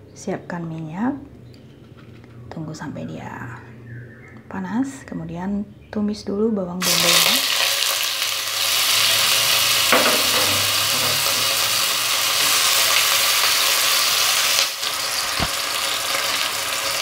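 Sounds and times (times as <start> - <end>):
onion sizzling in hot oil: 6.8 - 17.0.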